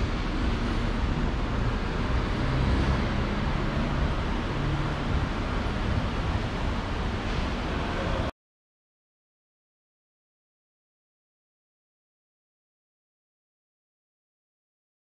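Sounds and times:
vehicle engine rumble: 0:00.0 - 0:08.3.

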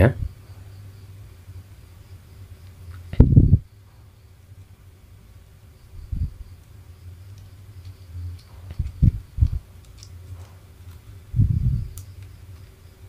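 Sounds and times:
steady low hum: 0:00.0 - 0:13.0
small clicks: 0:11.9 - 0:12.8.

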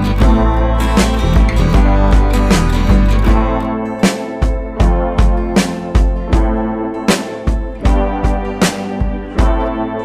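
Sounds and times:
instrumental music with steady beat: 0:00.0 - 0:10.0.

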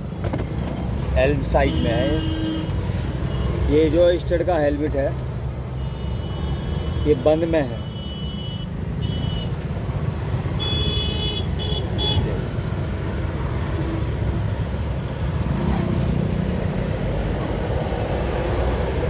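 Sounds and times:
road traffic rumble: 0:00.0 - 0:19.0
vehicle horn tooting: 0:01.6 - 0:02.7, 0:10.6 - 0:12.3.

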